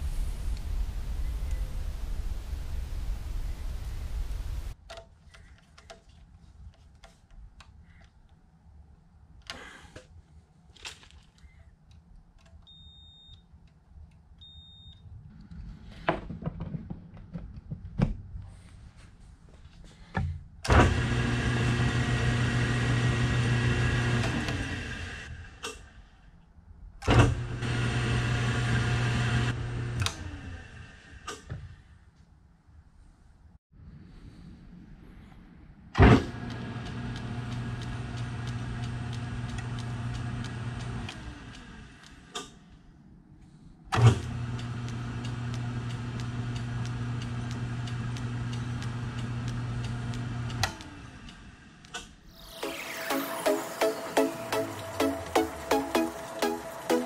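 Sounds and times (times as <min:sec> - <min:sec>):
lathe motor humming: 0:20.8 - 0:25.3, 0:27.4 - 0:31.1, 0:36.3 - 0:42.1, 0:44.0 - 0:51.6, 0:52.6 - 0:57.0.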